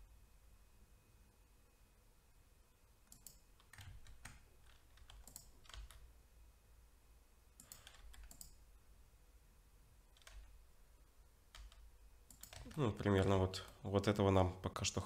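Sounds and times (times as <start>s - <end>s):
keyboard keystrokes: 3.1s - 6.0s, 7.6s - 8.6s, 10.1s - 10.5s, 11.5s - 13.8s.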